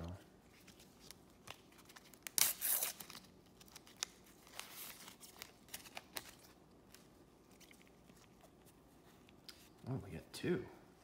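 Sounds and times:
wrapper ripping: 1.4s - 6.6s.

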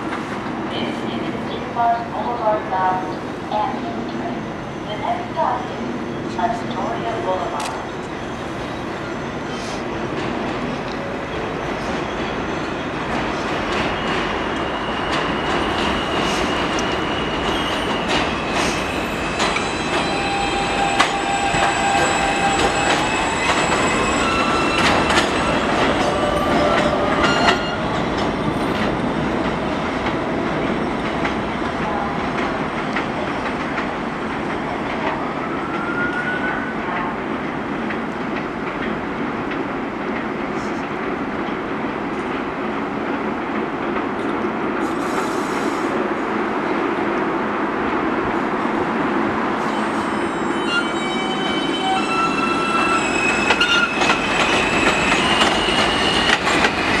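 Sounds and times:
subway train rumble: 0.0s - 57.0s
wheel squeal: 50.4s - 56.7s.

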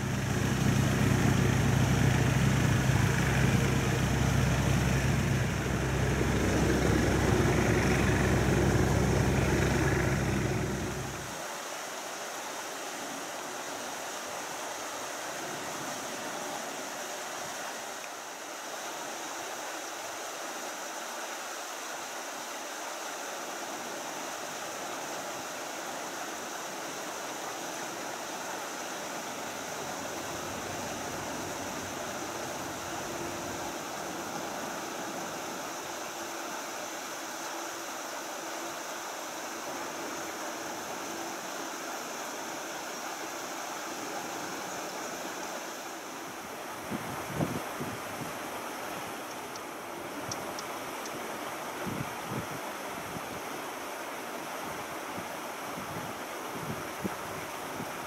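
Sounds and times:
jet engines idling: 0.0s - 11.4s
steady hiss: 0.0s - 58.0s.

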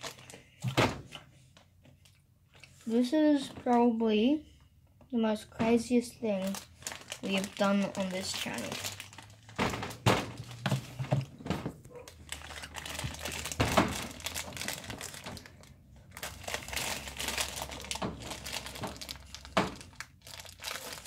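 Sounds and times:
plastic cup crinkling: 6.2s - 11.2s, 11.9s - 21.0s.

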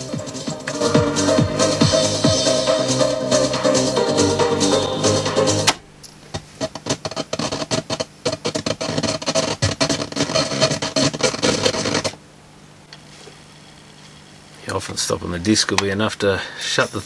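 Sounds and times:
skipping cd music clicks: 5.2s - 12.2s.

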